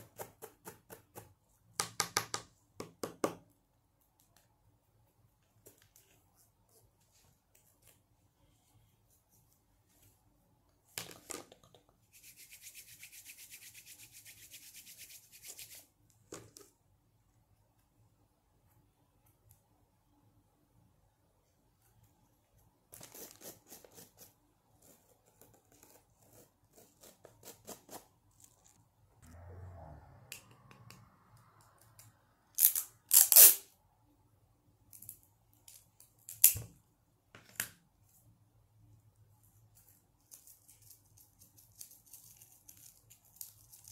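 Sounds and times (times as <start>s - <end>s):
palms rubbing together: 12.1s - 15.8s
tape ripping off a roll: 32.6s - 33.7s.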